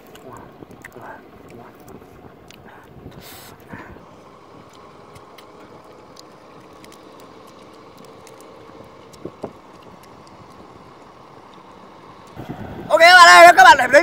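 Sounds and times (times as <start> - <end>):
faint hum: 0.0 - 14.0
small scattered clicks: 4.6 - 12.4.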